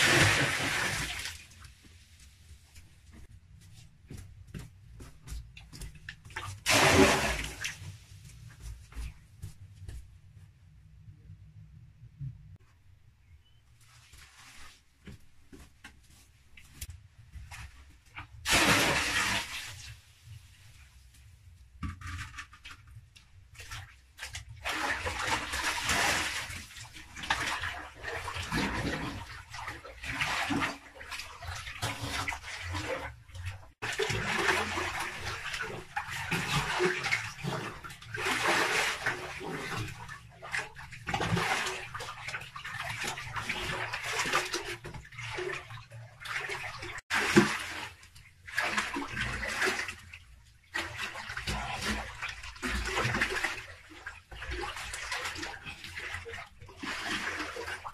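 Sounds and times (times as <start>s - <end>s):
water splashing in pool: 0.0s - 1.7s, 6.3s - 8.1s, 18.4s - 20.1s, 23.5s - 57.9s.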